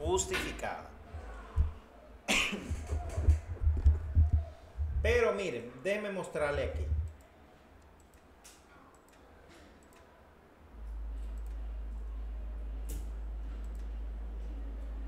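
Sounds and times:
steady low hum: 0:00.0 - 0:08.1, 0:10.2 - 0:15.0
computer mouse clicks: 0:06.8 - 0:10.2, 0:11.2 - 0:11.6, 0:12.8 - 0:14.0.

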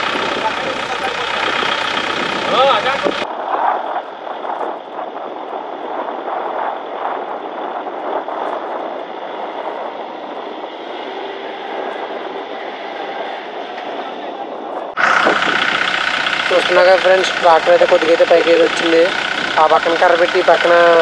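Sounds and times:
tractor diesel engine straining: 0:00.0 - 0:03.3, 0:10.5 - 0:21.0.

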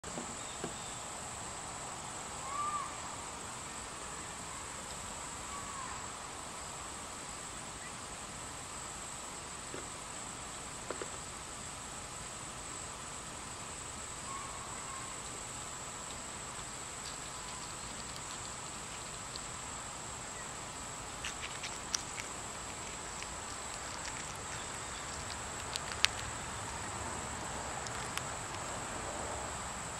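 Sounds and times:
insect trilling: 0:02.4 - 0:06.7, 0:13.6 - 0:29.0.

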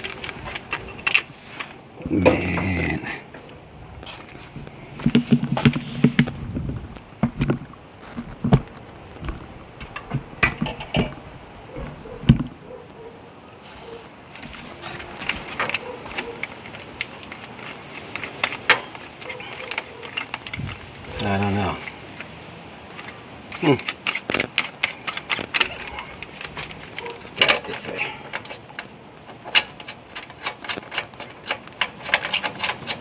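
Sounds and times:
hose fitting clicks and clacks: 0:00.0 - 0:02.4, 0:14.3 - 0:33.0.

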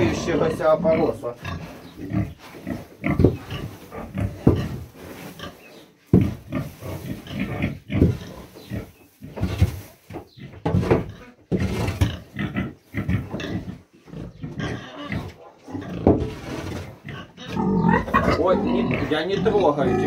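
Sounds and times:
pig grunting: 0:00.0 - 0:05.6, 0:06.2 - 0:09.6, 0:10.4 - 0:20.0.

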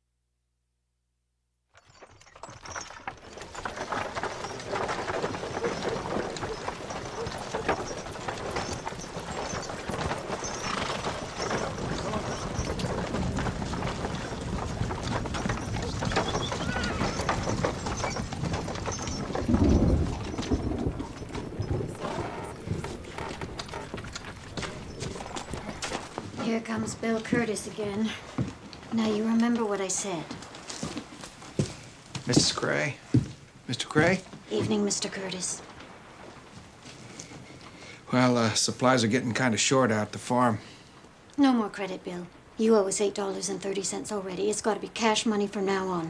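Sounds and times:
horse hooves clip-clopping: 0:01.8 - 0:37.8.

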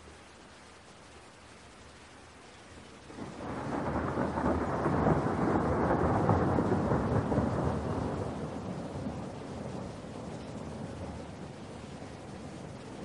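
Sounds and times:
steady rain: 0:00.0 - 0:13.0
thunder rolling: 0:03.1 - 0:13.0.

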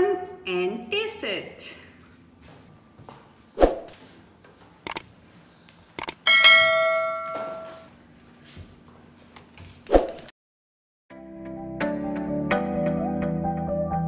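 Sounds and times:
bell ding: 0:06.3 - 0:07.9.

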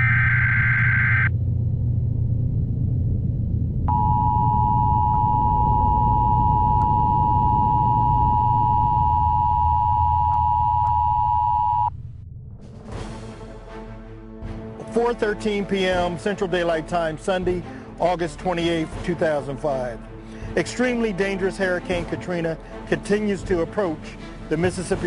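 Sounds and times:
alert data tones: 0:00.0 - 0:01.3
low radio hum: 0:00.0 - 0:12.0.

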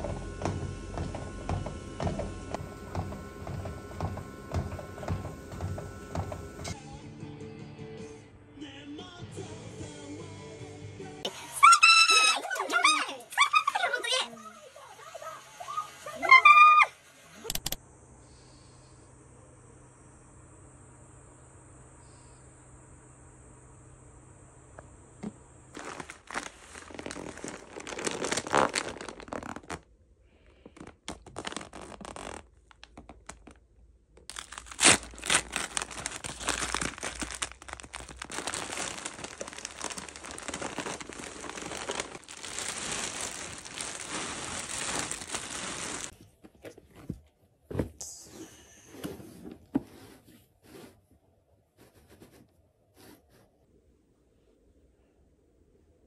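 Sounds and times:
packaging crinkling and tearing: 0:25.7 - 0:29.9, 0:30.5 - 0:46.2.

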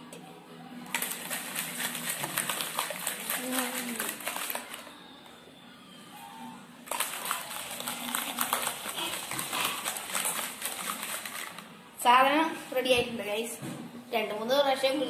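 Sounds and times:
ice rattling in a shaker: 0:00.9 - 0:04.9, 0:06.9 - 0:11.7.

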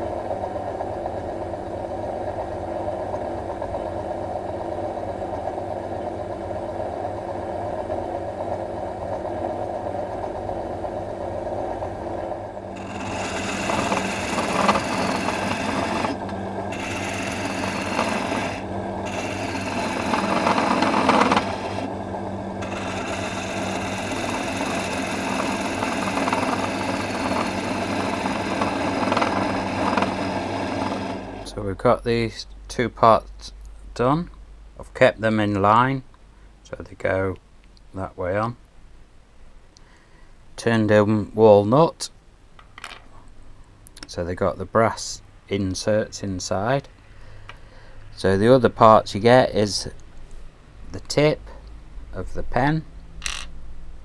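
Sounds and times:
electric motor humming: 0:12.4 - 0:31.6
tool scraping spinning wood: 0:12.6 - 0:31.6.

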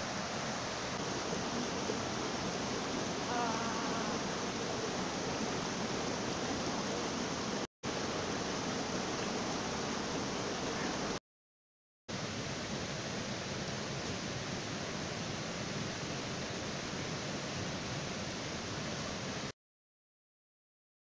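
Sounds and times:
stream flowing over rocks: 0:00.0 - 0:11.2.

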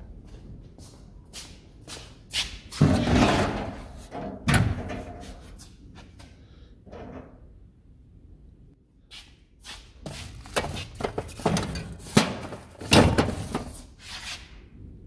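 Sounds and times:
sheet-metal cabinet doors opening: 0:02.8 - 0:05.2, 0:10.5 - 0:13.8.

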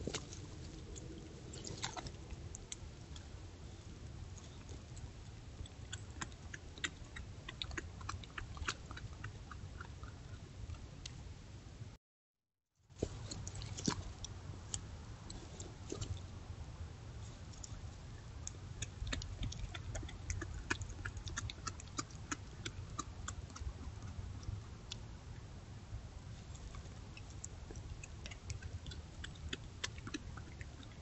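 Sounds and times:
animal crunching bones: 0:00.0 - 0:11.2, 0:13.0 - 0:16.3, 0:17.2 - 0:25.1, 0:26.3 - 0:31.0
low background rumble: 0:00.0 - 0:12.0, 0:12.8 - 0:31.0.

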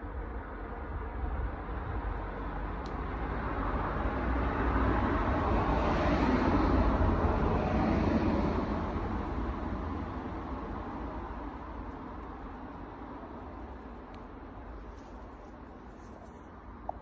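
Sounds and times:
vehicle passing by: 0:02.6 - 0:11.7.

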